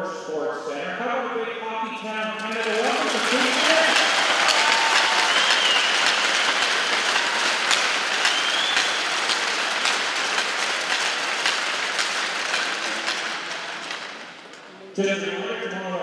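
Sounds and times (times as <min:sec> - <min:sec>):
crowd applauding: 0:02.2 - 0:14.9.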